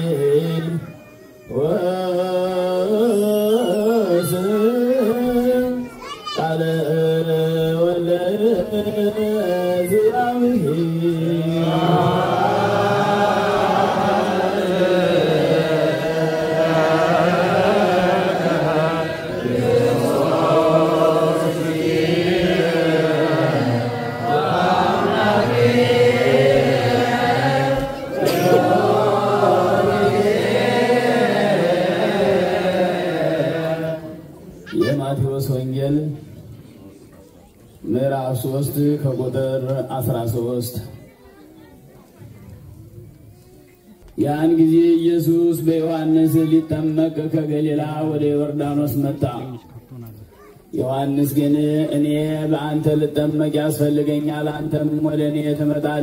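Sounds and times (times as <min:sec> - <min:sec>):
group chanting: 0:10.5 - 0:34.6.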